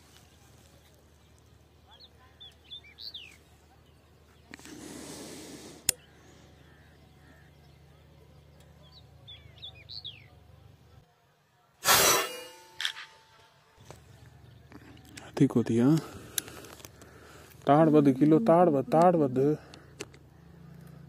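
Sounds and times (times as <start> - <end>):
small birds chirping: 0.0 - 11.1
air rifle shot: 11.8 - 13.3.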